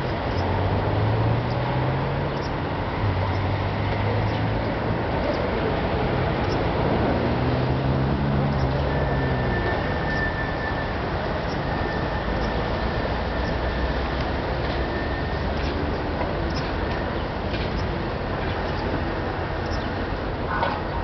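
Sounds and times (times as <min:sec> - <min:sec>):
city street traffic: 0:00.0 - 0:21.0
vehicle engines humming: 0:00.0 - 0:21.0.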